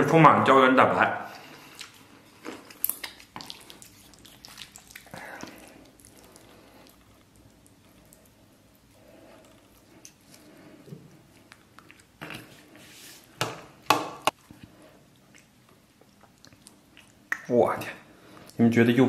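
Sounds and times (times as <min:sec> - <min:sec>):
soft chewing: 0:01.3 - 0:13.0, 0:14.3 - 0:17.5.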